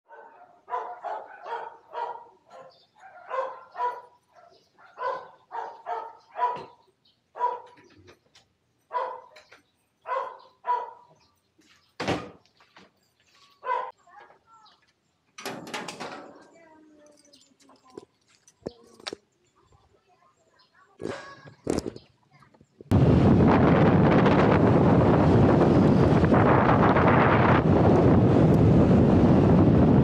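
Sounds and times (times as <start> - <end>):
dog barking: 0.1 - 6.8, 7.4 - 7.8, 8.9 - 11.2, 13.6 - 14.0.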